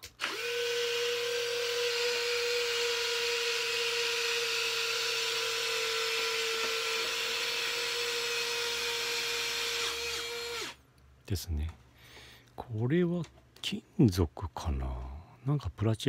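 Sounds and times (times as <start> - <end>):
small motor whine: 0.2 - 8.3.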